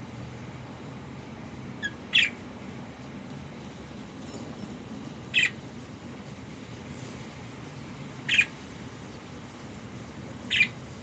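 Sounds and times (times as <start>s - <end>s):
budgerigar calls: 1.8s - 2.4s, 5.3s - 5.6s, 8.3s - 8.6s, 10.5s - 10.8s.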